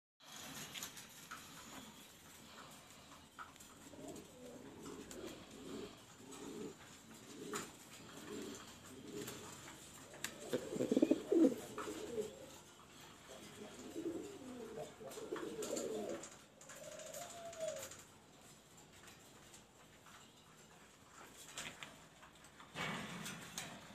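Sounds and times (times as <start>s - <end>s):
pigeons cooing: 0.4s - 19.6s.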